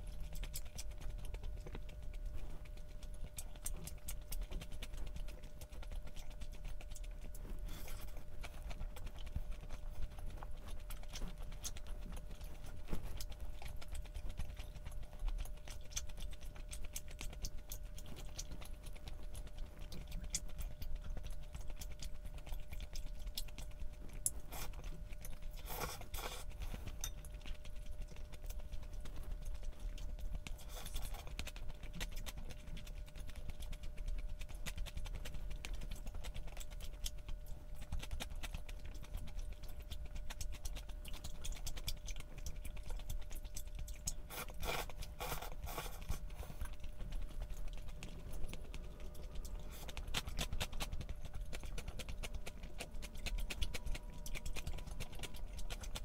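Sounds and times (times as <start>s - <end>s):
chewing with small clicks: 0.0s - 56.0s
steady low hum: 0.0s - 56.0s.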